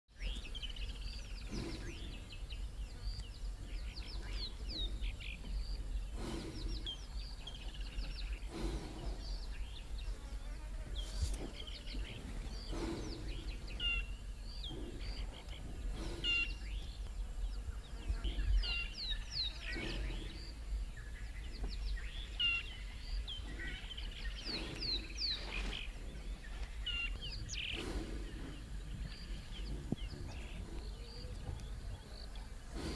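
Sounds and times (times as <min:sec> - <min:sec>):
small birds chirping: 0:00.1 - 0:32.9
low background rumble: 0:11.4 - 0:32.9.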